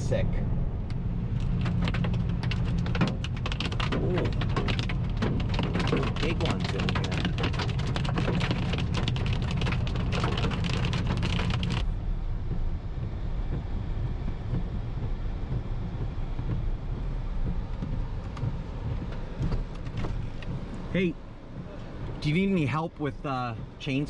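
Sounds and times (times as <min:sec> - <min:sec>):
car driving rumble: 0:00.0 - 0:24.0
hail and rain pelting car roof: 0:01.4 - 0:11.8.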